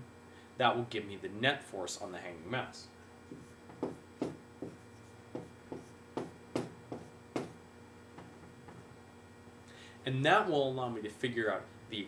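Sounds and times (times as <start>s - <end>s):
faint electrical hum: 0.0s - 12.0s
marker writing on whiteboard: 3.3s - 7.6s.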